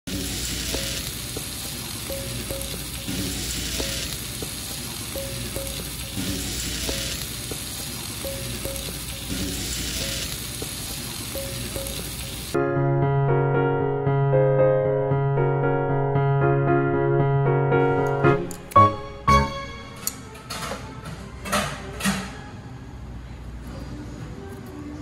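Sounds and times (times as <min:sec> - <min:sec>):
fried rice sizzling on griddle: 0:00.1 - 0:12.6.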